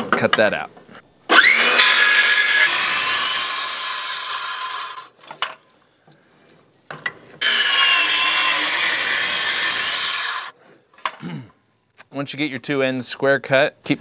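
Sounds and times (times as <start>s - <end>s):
circular saw cutting wood: 1.3s - 5.2s, 7.4s - 10.6s.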